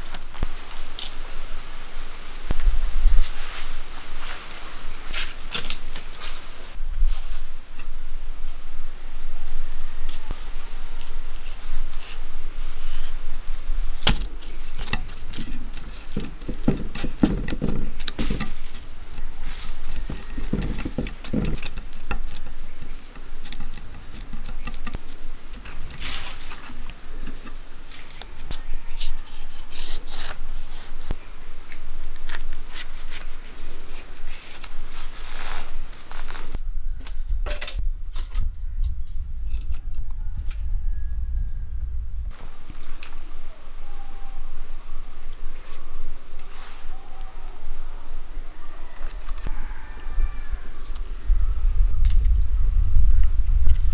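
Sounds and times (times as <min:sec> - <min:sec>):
leaves crackling and rustling: 0:00.0 - 0:40.6, 0:42.3 - 0:53.9
sharp clicks and scrapes: 0:14.0 - 0:31.0
low rumble: 0:36.6 - 0:42.7, 0:51.1 - 0:53.9.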